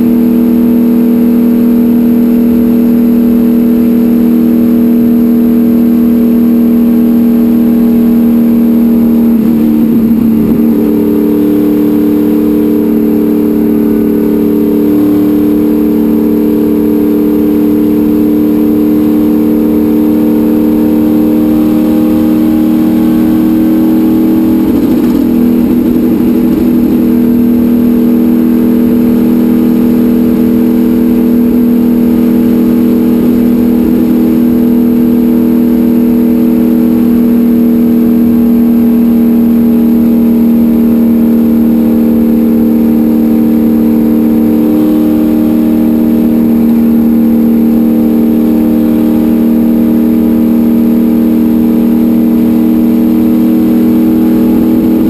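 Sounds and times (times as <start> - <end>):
racecar engine running hard: 0.0 - 55.0.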